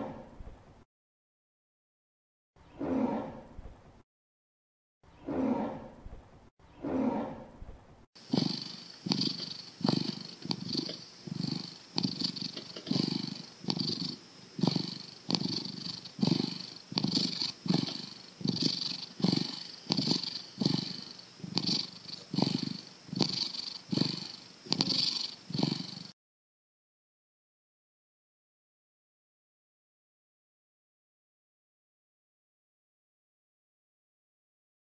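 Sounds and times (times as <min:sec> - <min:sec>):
cat purring: 0:08.2 - 0:26.2.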